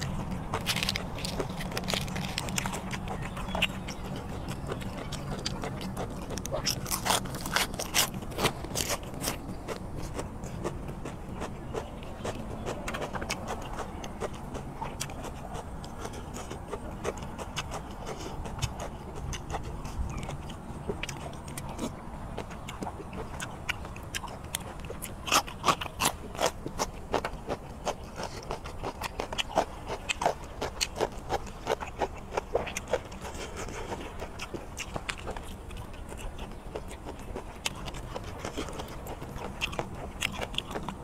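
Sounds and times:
chewing and mouth smacking: 0.0 - 41.0.

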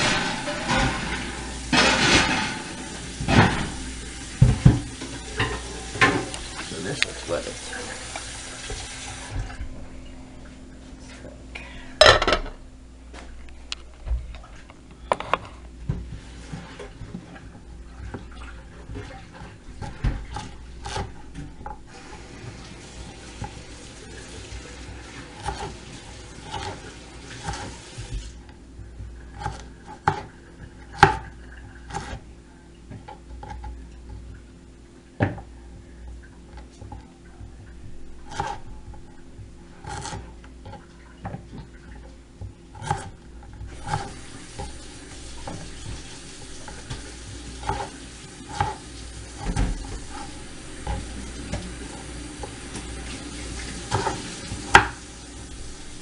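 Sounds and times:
dishes clattering: 0.0 - 6.7, 12.0 - 12.6
sink tap running: 0.0 - 9.7, 21.0 - 32.2, 40.6 - 56.0
knife cutting on wooden board: 19.8 - 21.2, 25.4 - 25.8, 26.4 - 28.3, 31.9 - 32.2, 38.2 - 38.7, 39.8 - 40.8, 42.7 - 45.7, 46.6 - 51.2.

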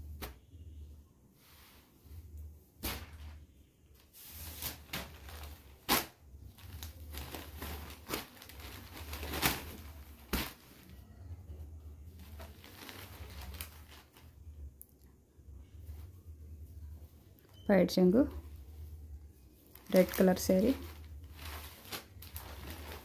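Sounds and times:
fabric rustling and swishing: 4.0 - 11.0, 19.6 - 23.0.

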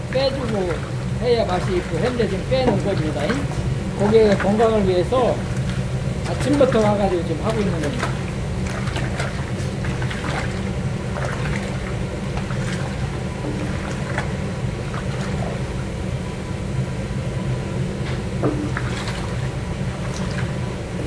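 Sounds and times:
wet chicken squelching: 0.1 - 16.0.

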